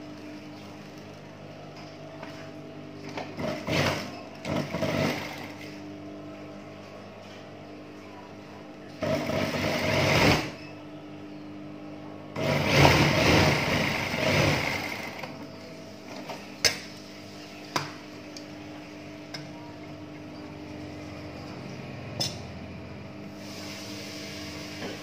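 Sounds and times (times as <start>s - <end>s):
sewing machine stitching: 3.4s - 5.6s, 9.0s - 10.6s, 12.4s - 15.3s.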